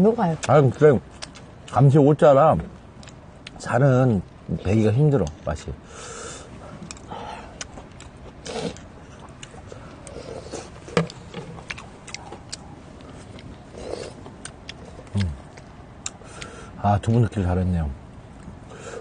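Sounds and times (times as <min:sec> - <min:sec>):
chewing and lip smacking: 0:00.4 - 0:01.8, 0:03.0 - 0:03.6, 0:06.8 - 0:16.6.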